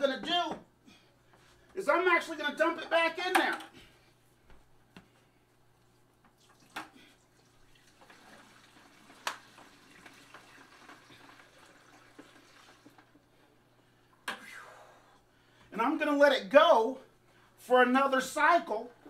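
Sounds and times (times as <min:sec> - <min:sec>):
water splashing into tub: 0:06.4 - 0:13.2.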